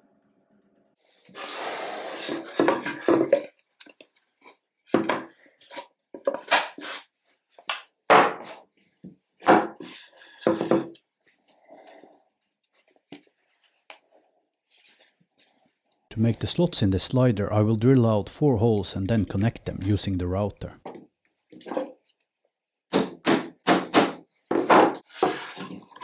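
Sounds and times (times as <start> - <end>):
wooden boards scraping: 24.5 - 26.0.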